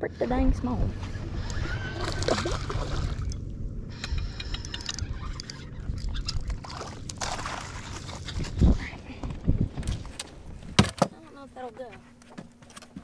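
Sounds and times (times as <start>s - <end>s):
low wind rumble: 0.0s - 11.5s
water sloshing against boat: 0.3s - 3.5s, 5.1s - 13.0s
fish splashing at surface: 6.6s - 8.5s.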